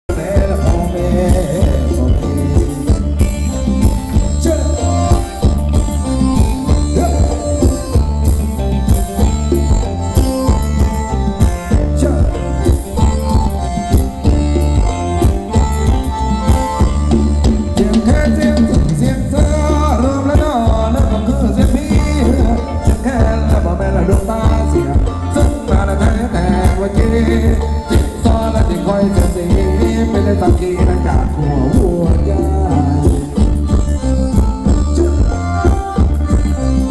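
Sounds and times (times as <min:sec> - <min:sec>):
person singing: 0:00.1 - 0:05.8, 0:17.4 - 0:36.9
live dance band music: 0:00.1 - 0:36.9.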